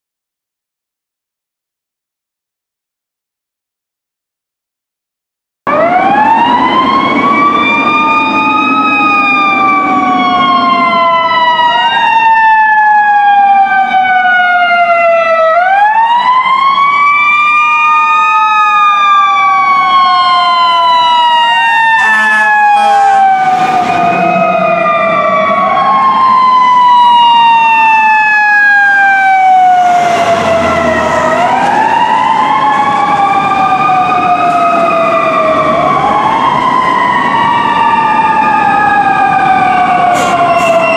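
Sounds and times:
fire truck sirens wailing: 5.7 - 40.9
short horn blasts: 22.0 - 23.5.

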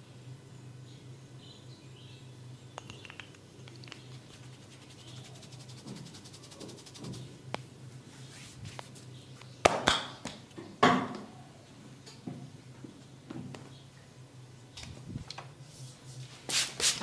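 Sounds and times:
massage rubbing: 4.1 - 7.3, 8.1 - 9.0.

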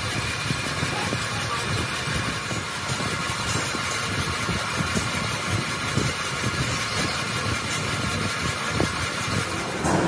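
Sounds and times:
machine high hum: 9.3 - 10.0
low knocks: 9.5 - 10.0.

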